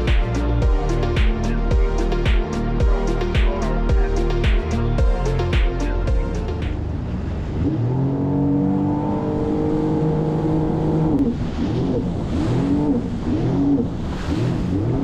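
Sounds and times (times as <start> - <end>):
jet ski engine running: 0.0 - 15.0.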